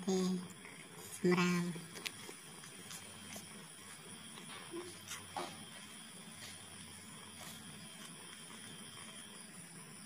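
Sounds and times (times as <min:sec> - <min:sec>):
soft rustling: 0:00.5 - 0:09.8
kittens suckling clicks: 0:01.8 - 0:09.2.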